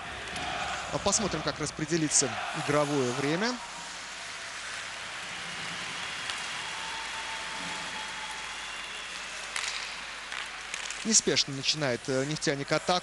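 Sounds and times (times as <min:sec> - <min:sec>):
crowd noise: 0:00.0 - 0:13.0
skates and sticks on ice: 0:03.8 - 0:12.8.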